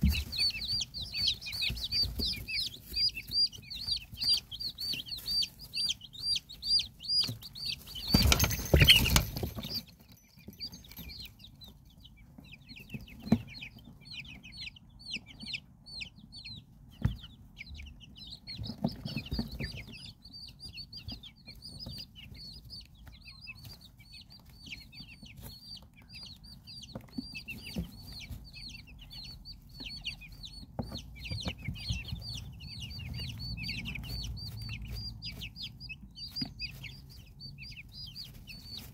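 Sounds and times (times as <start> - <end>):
loud rustling: 0.0 - 10.0
chicks peeping: 0.0 - 38.9.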